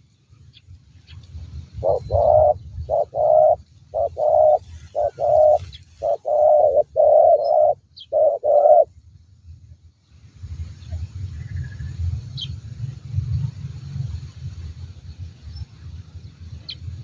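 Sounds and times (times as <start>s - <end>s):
dove cooing: 1.8s - 8.9s.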